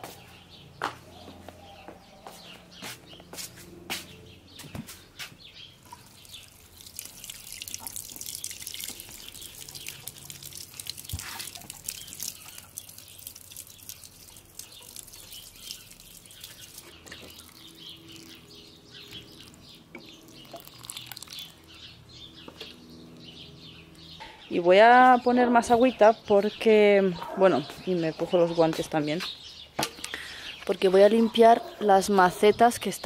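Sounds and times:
water trickling onto soil: 5.0 - 24.2.

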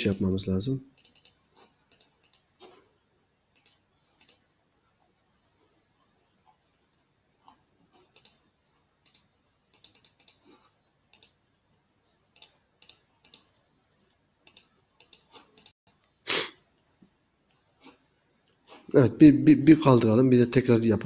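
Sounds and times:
computer mouse clicks: 0.9 - 4.5, 8.0 - 15.8.

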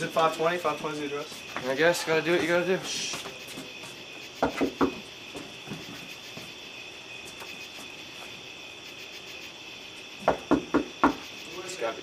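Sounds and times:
crickets trilling: 0.0 - 12.0
knuckle knocks on door: 4.4 - 5.0, 10.2 - 11.2.

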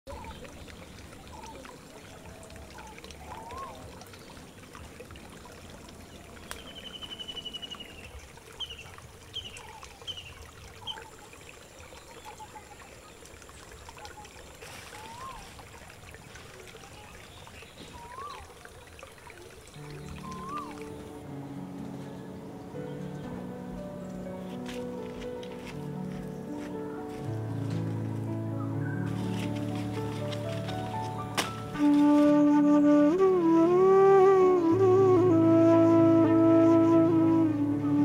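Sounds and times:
water trickling: 0.1 - 38.0
birds calling: 16.8 - 18.5, 19.8 - 27.8
bird trill: 20.0 - 21.0
high bird chirps: 20.0 - 21.0.

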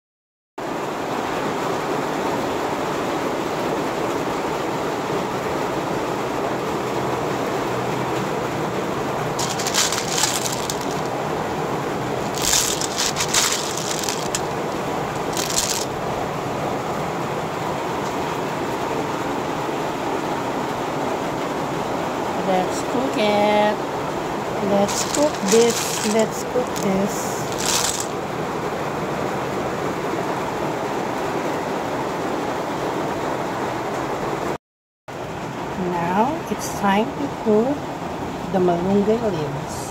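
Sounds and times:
clams clattering in a colander: 9.4 - 11.1, 12.2 - 14.5, 15.2 - 16.0, 24.7 - 28.2.

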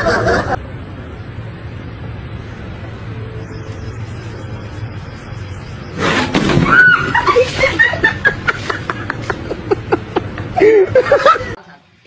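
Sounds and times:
person laughing hard: 6.8 - 11.6.

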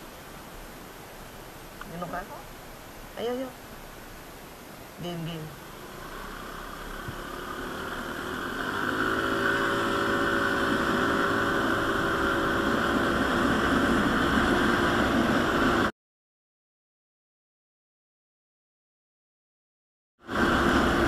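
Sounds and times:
wind and road noise: 5.6 - 15.9, 20.3 - 21.0
scooter engine accelerating: 5.7 - 15.9, 20.3 - 21.0.

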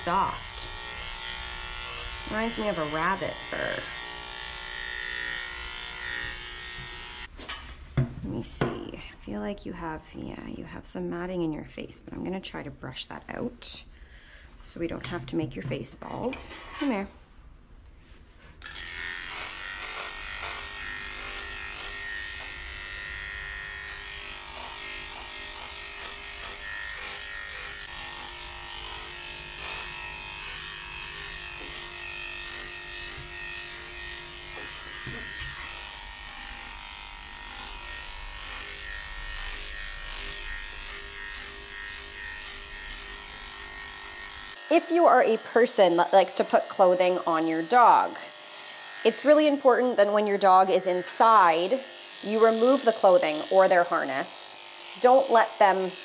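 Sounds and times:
electric clippers running: 0.0 - 7.3, 18.6 - 56.0.

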